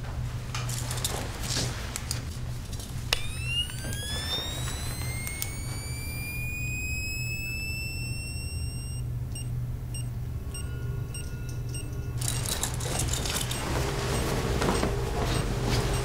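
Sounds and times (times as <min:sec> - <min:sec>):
rustling and clattering: 0:00.0 - 0:03.1, 0:12.2 - 0:16.0
steady low hum: 0:00.0 - 0:16.0
high electronic whine: 0:03.1 - 0:09.2
short electronic beeps: 0:03.2 - 0:12.0.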